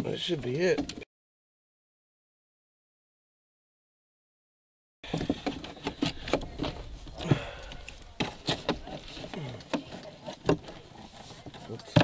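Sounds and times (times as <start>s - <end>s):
hands handling engine parts: 5.0s - 12.0s.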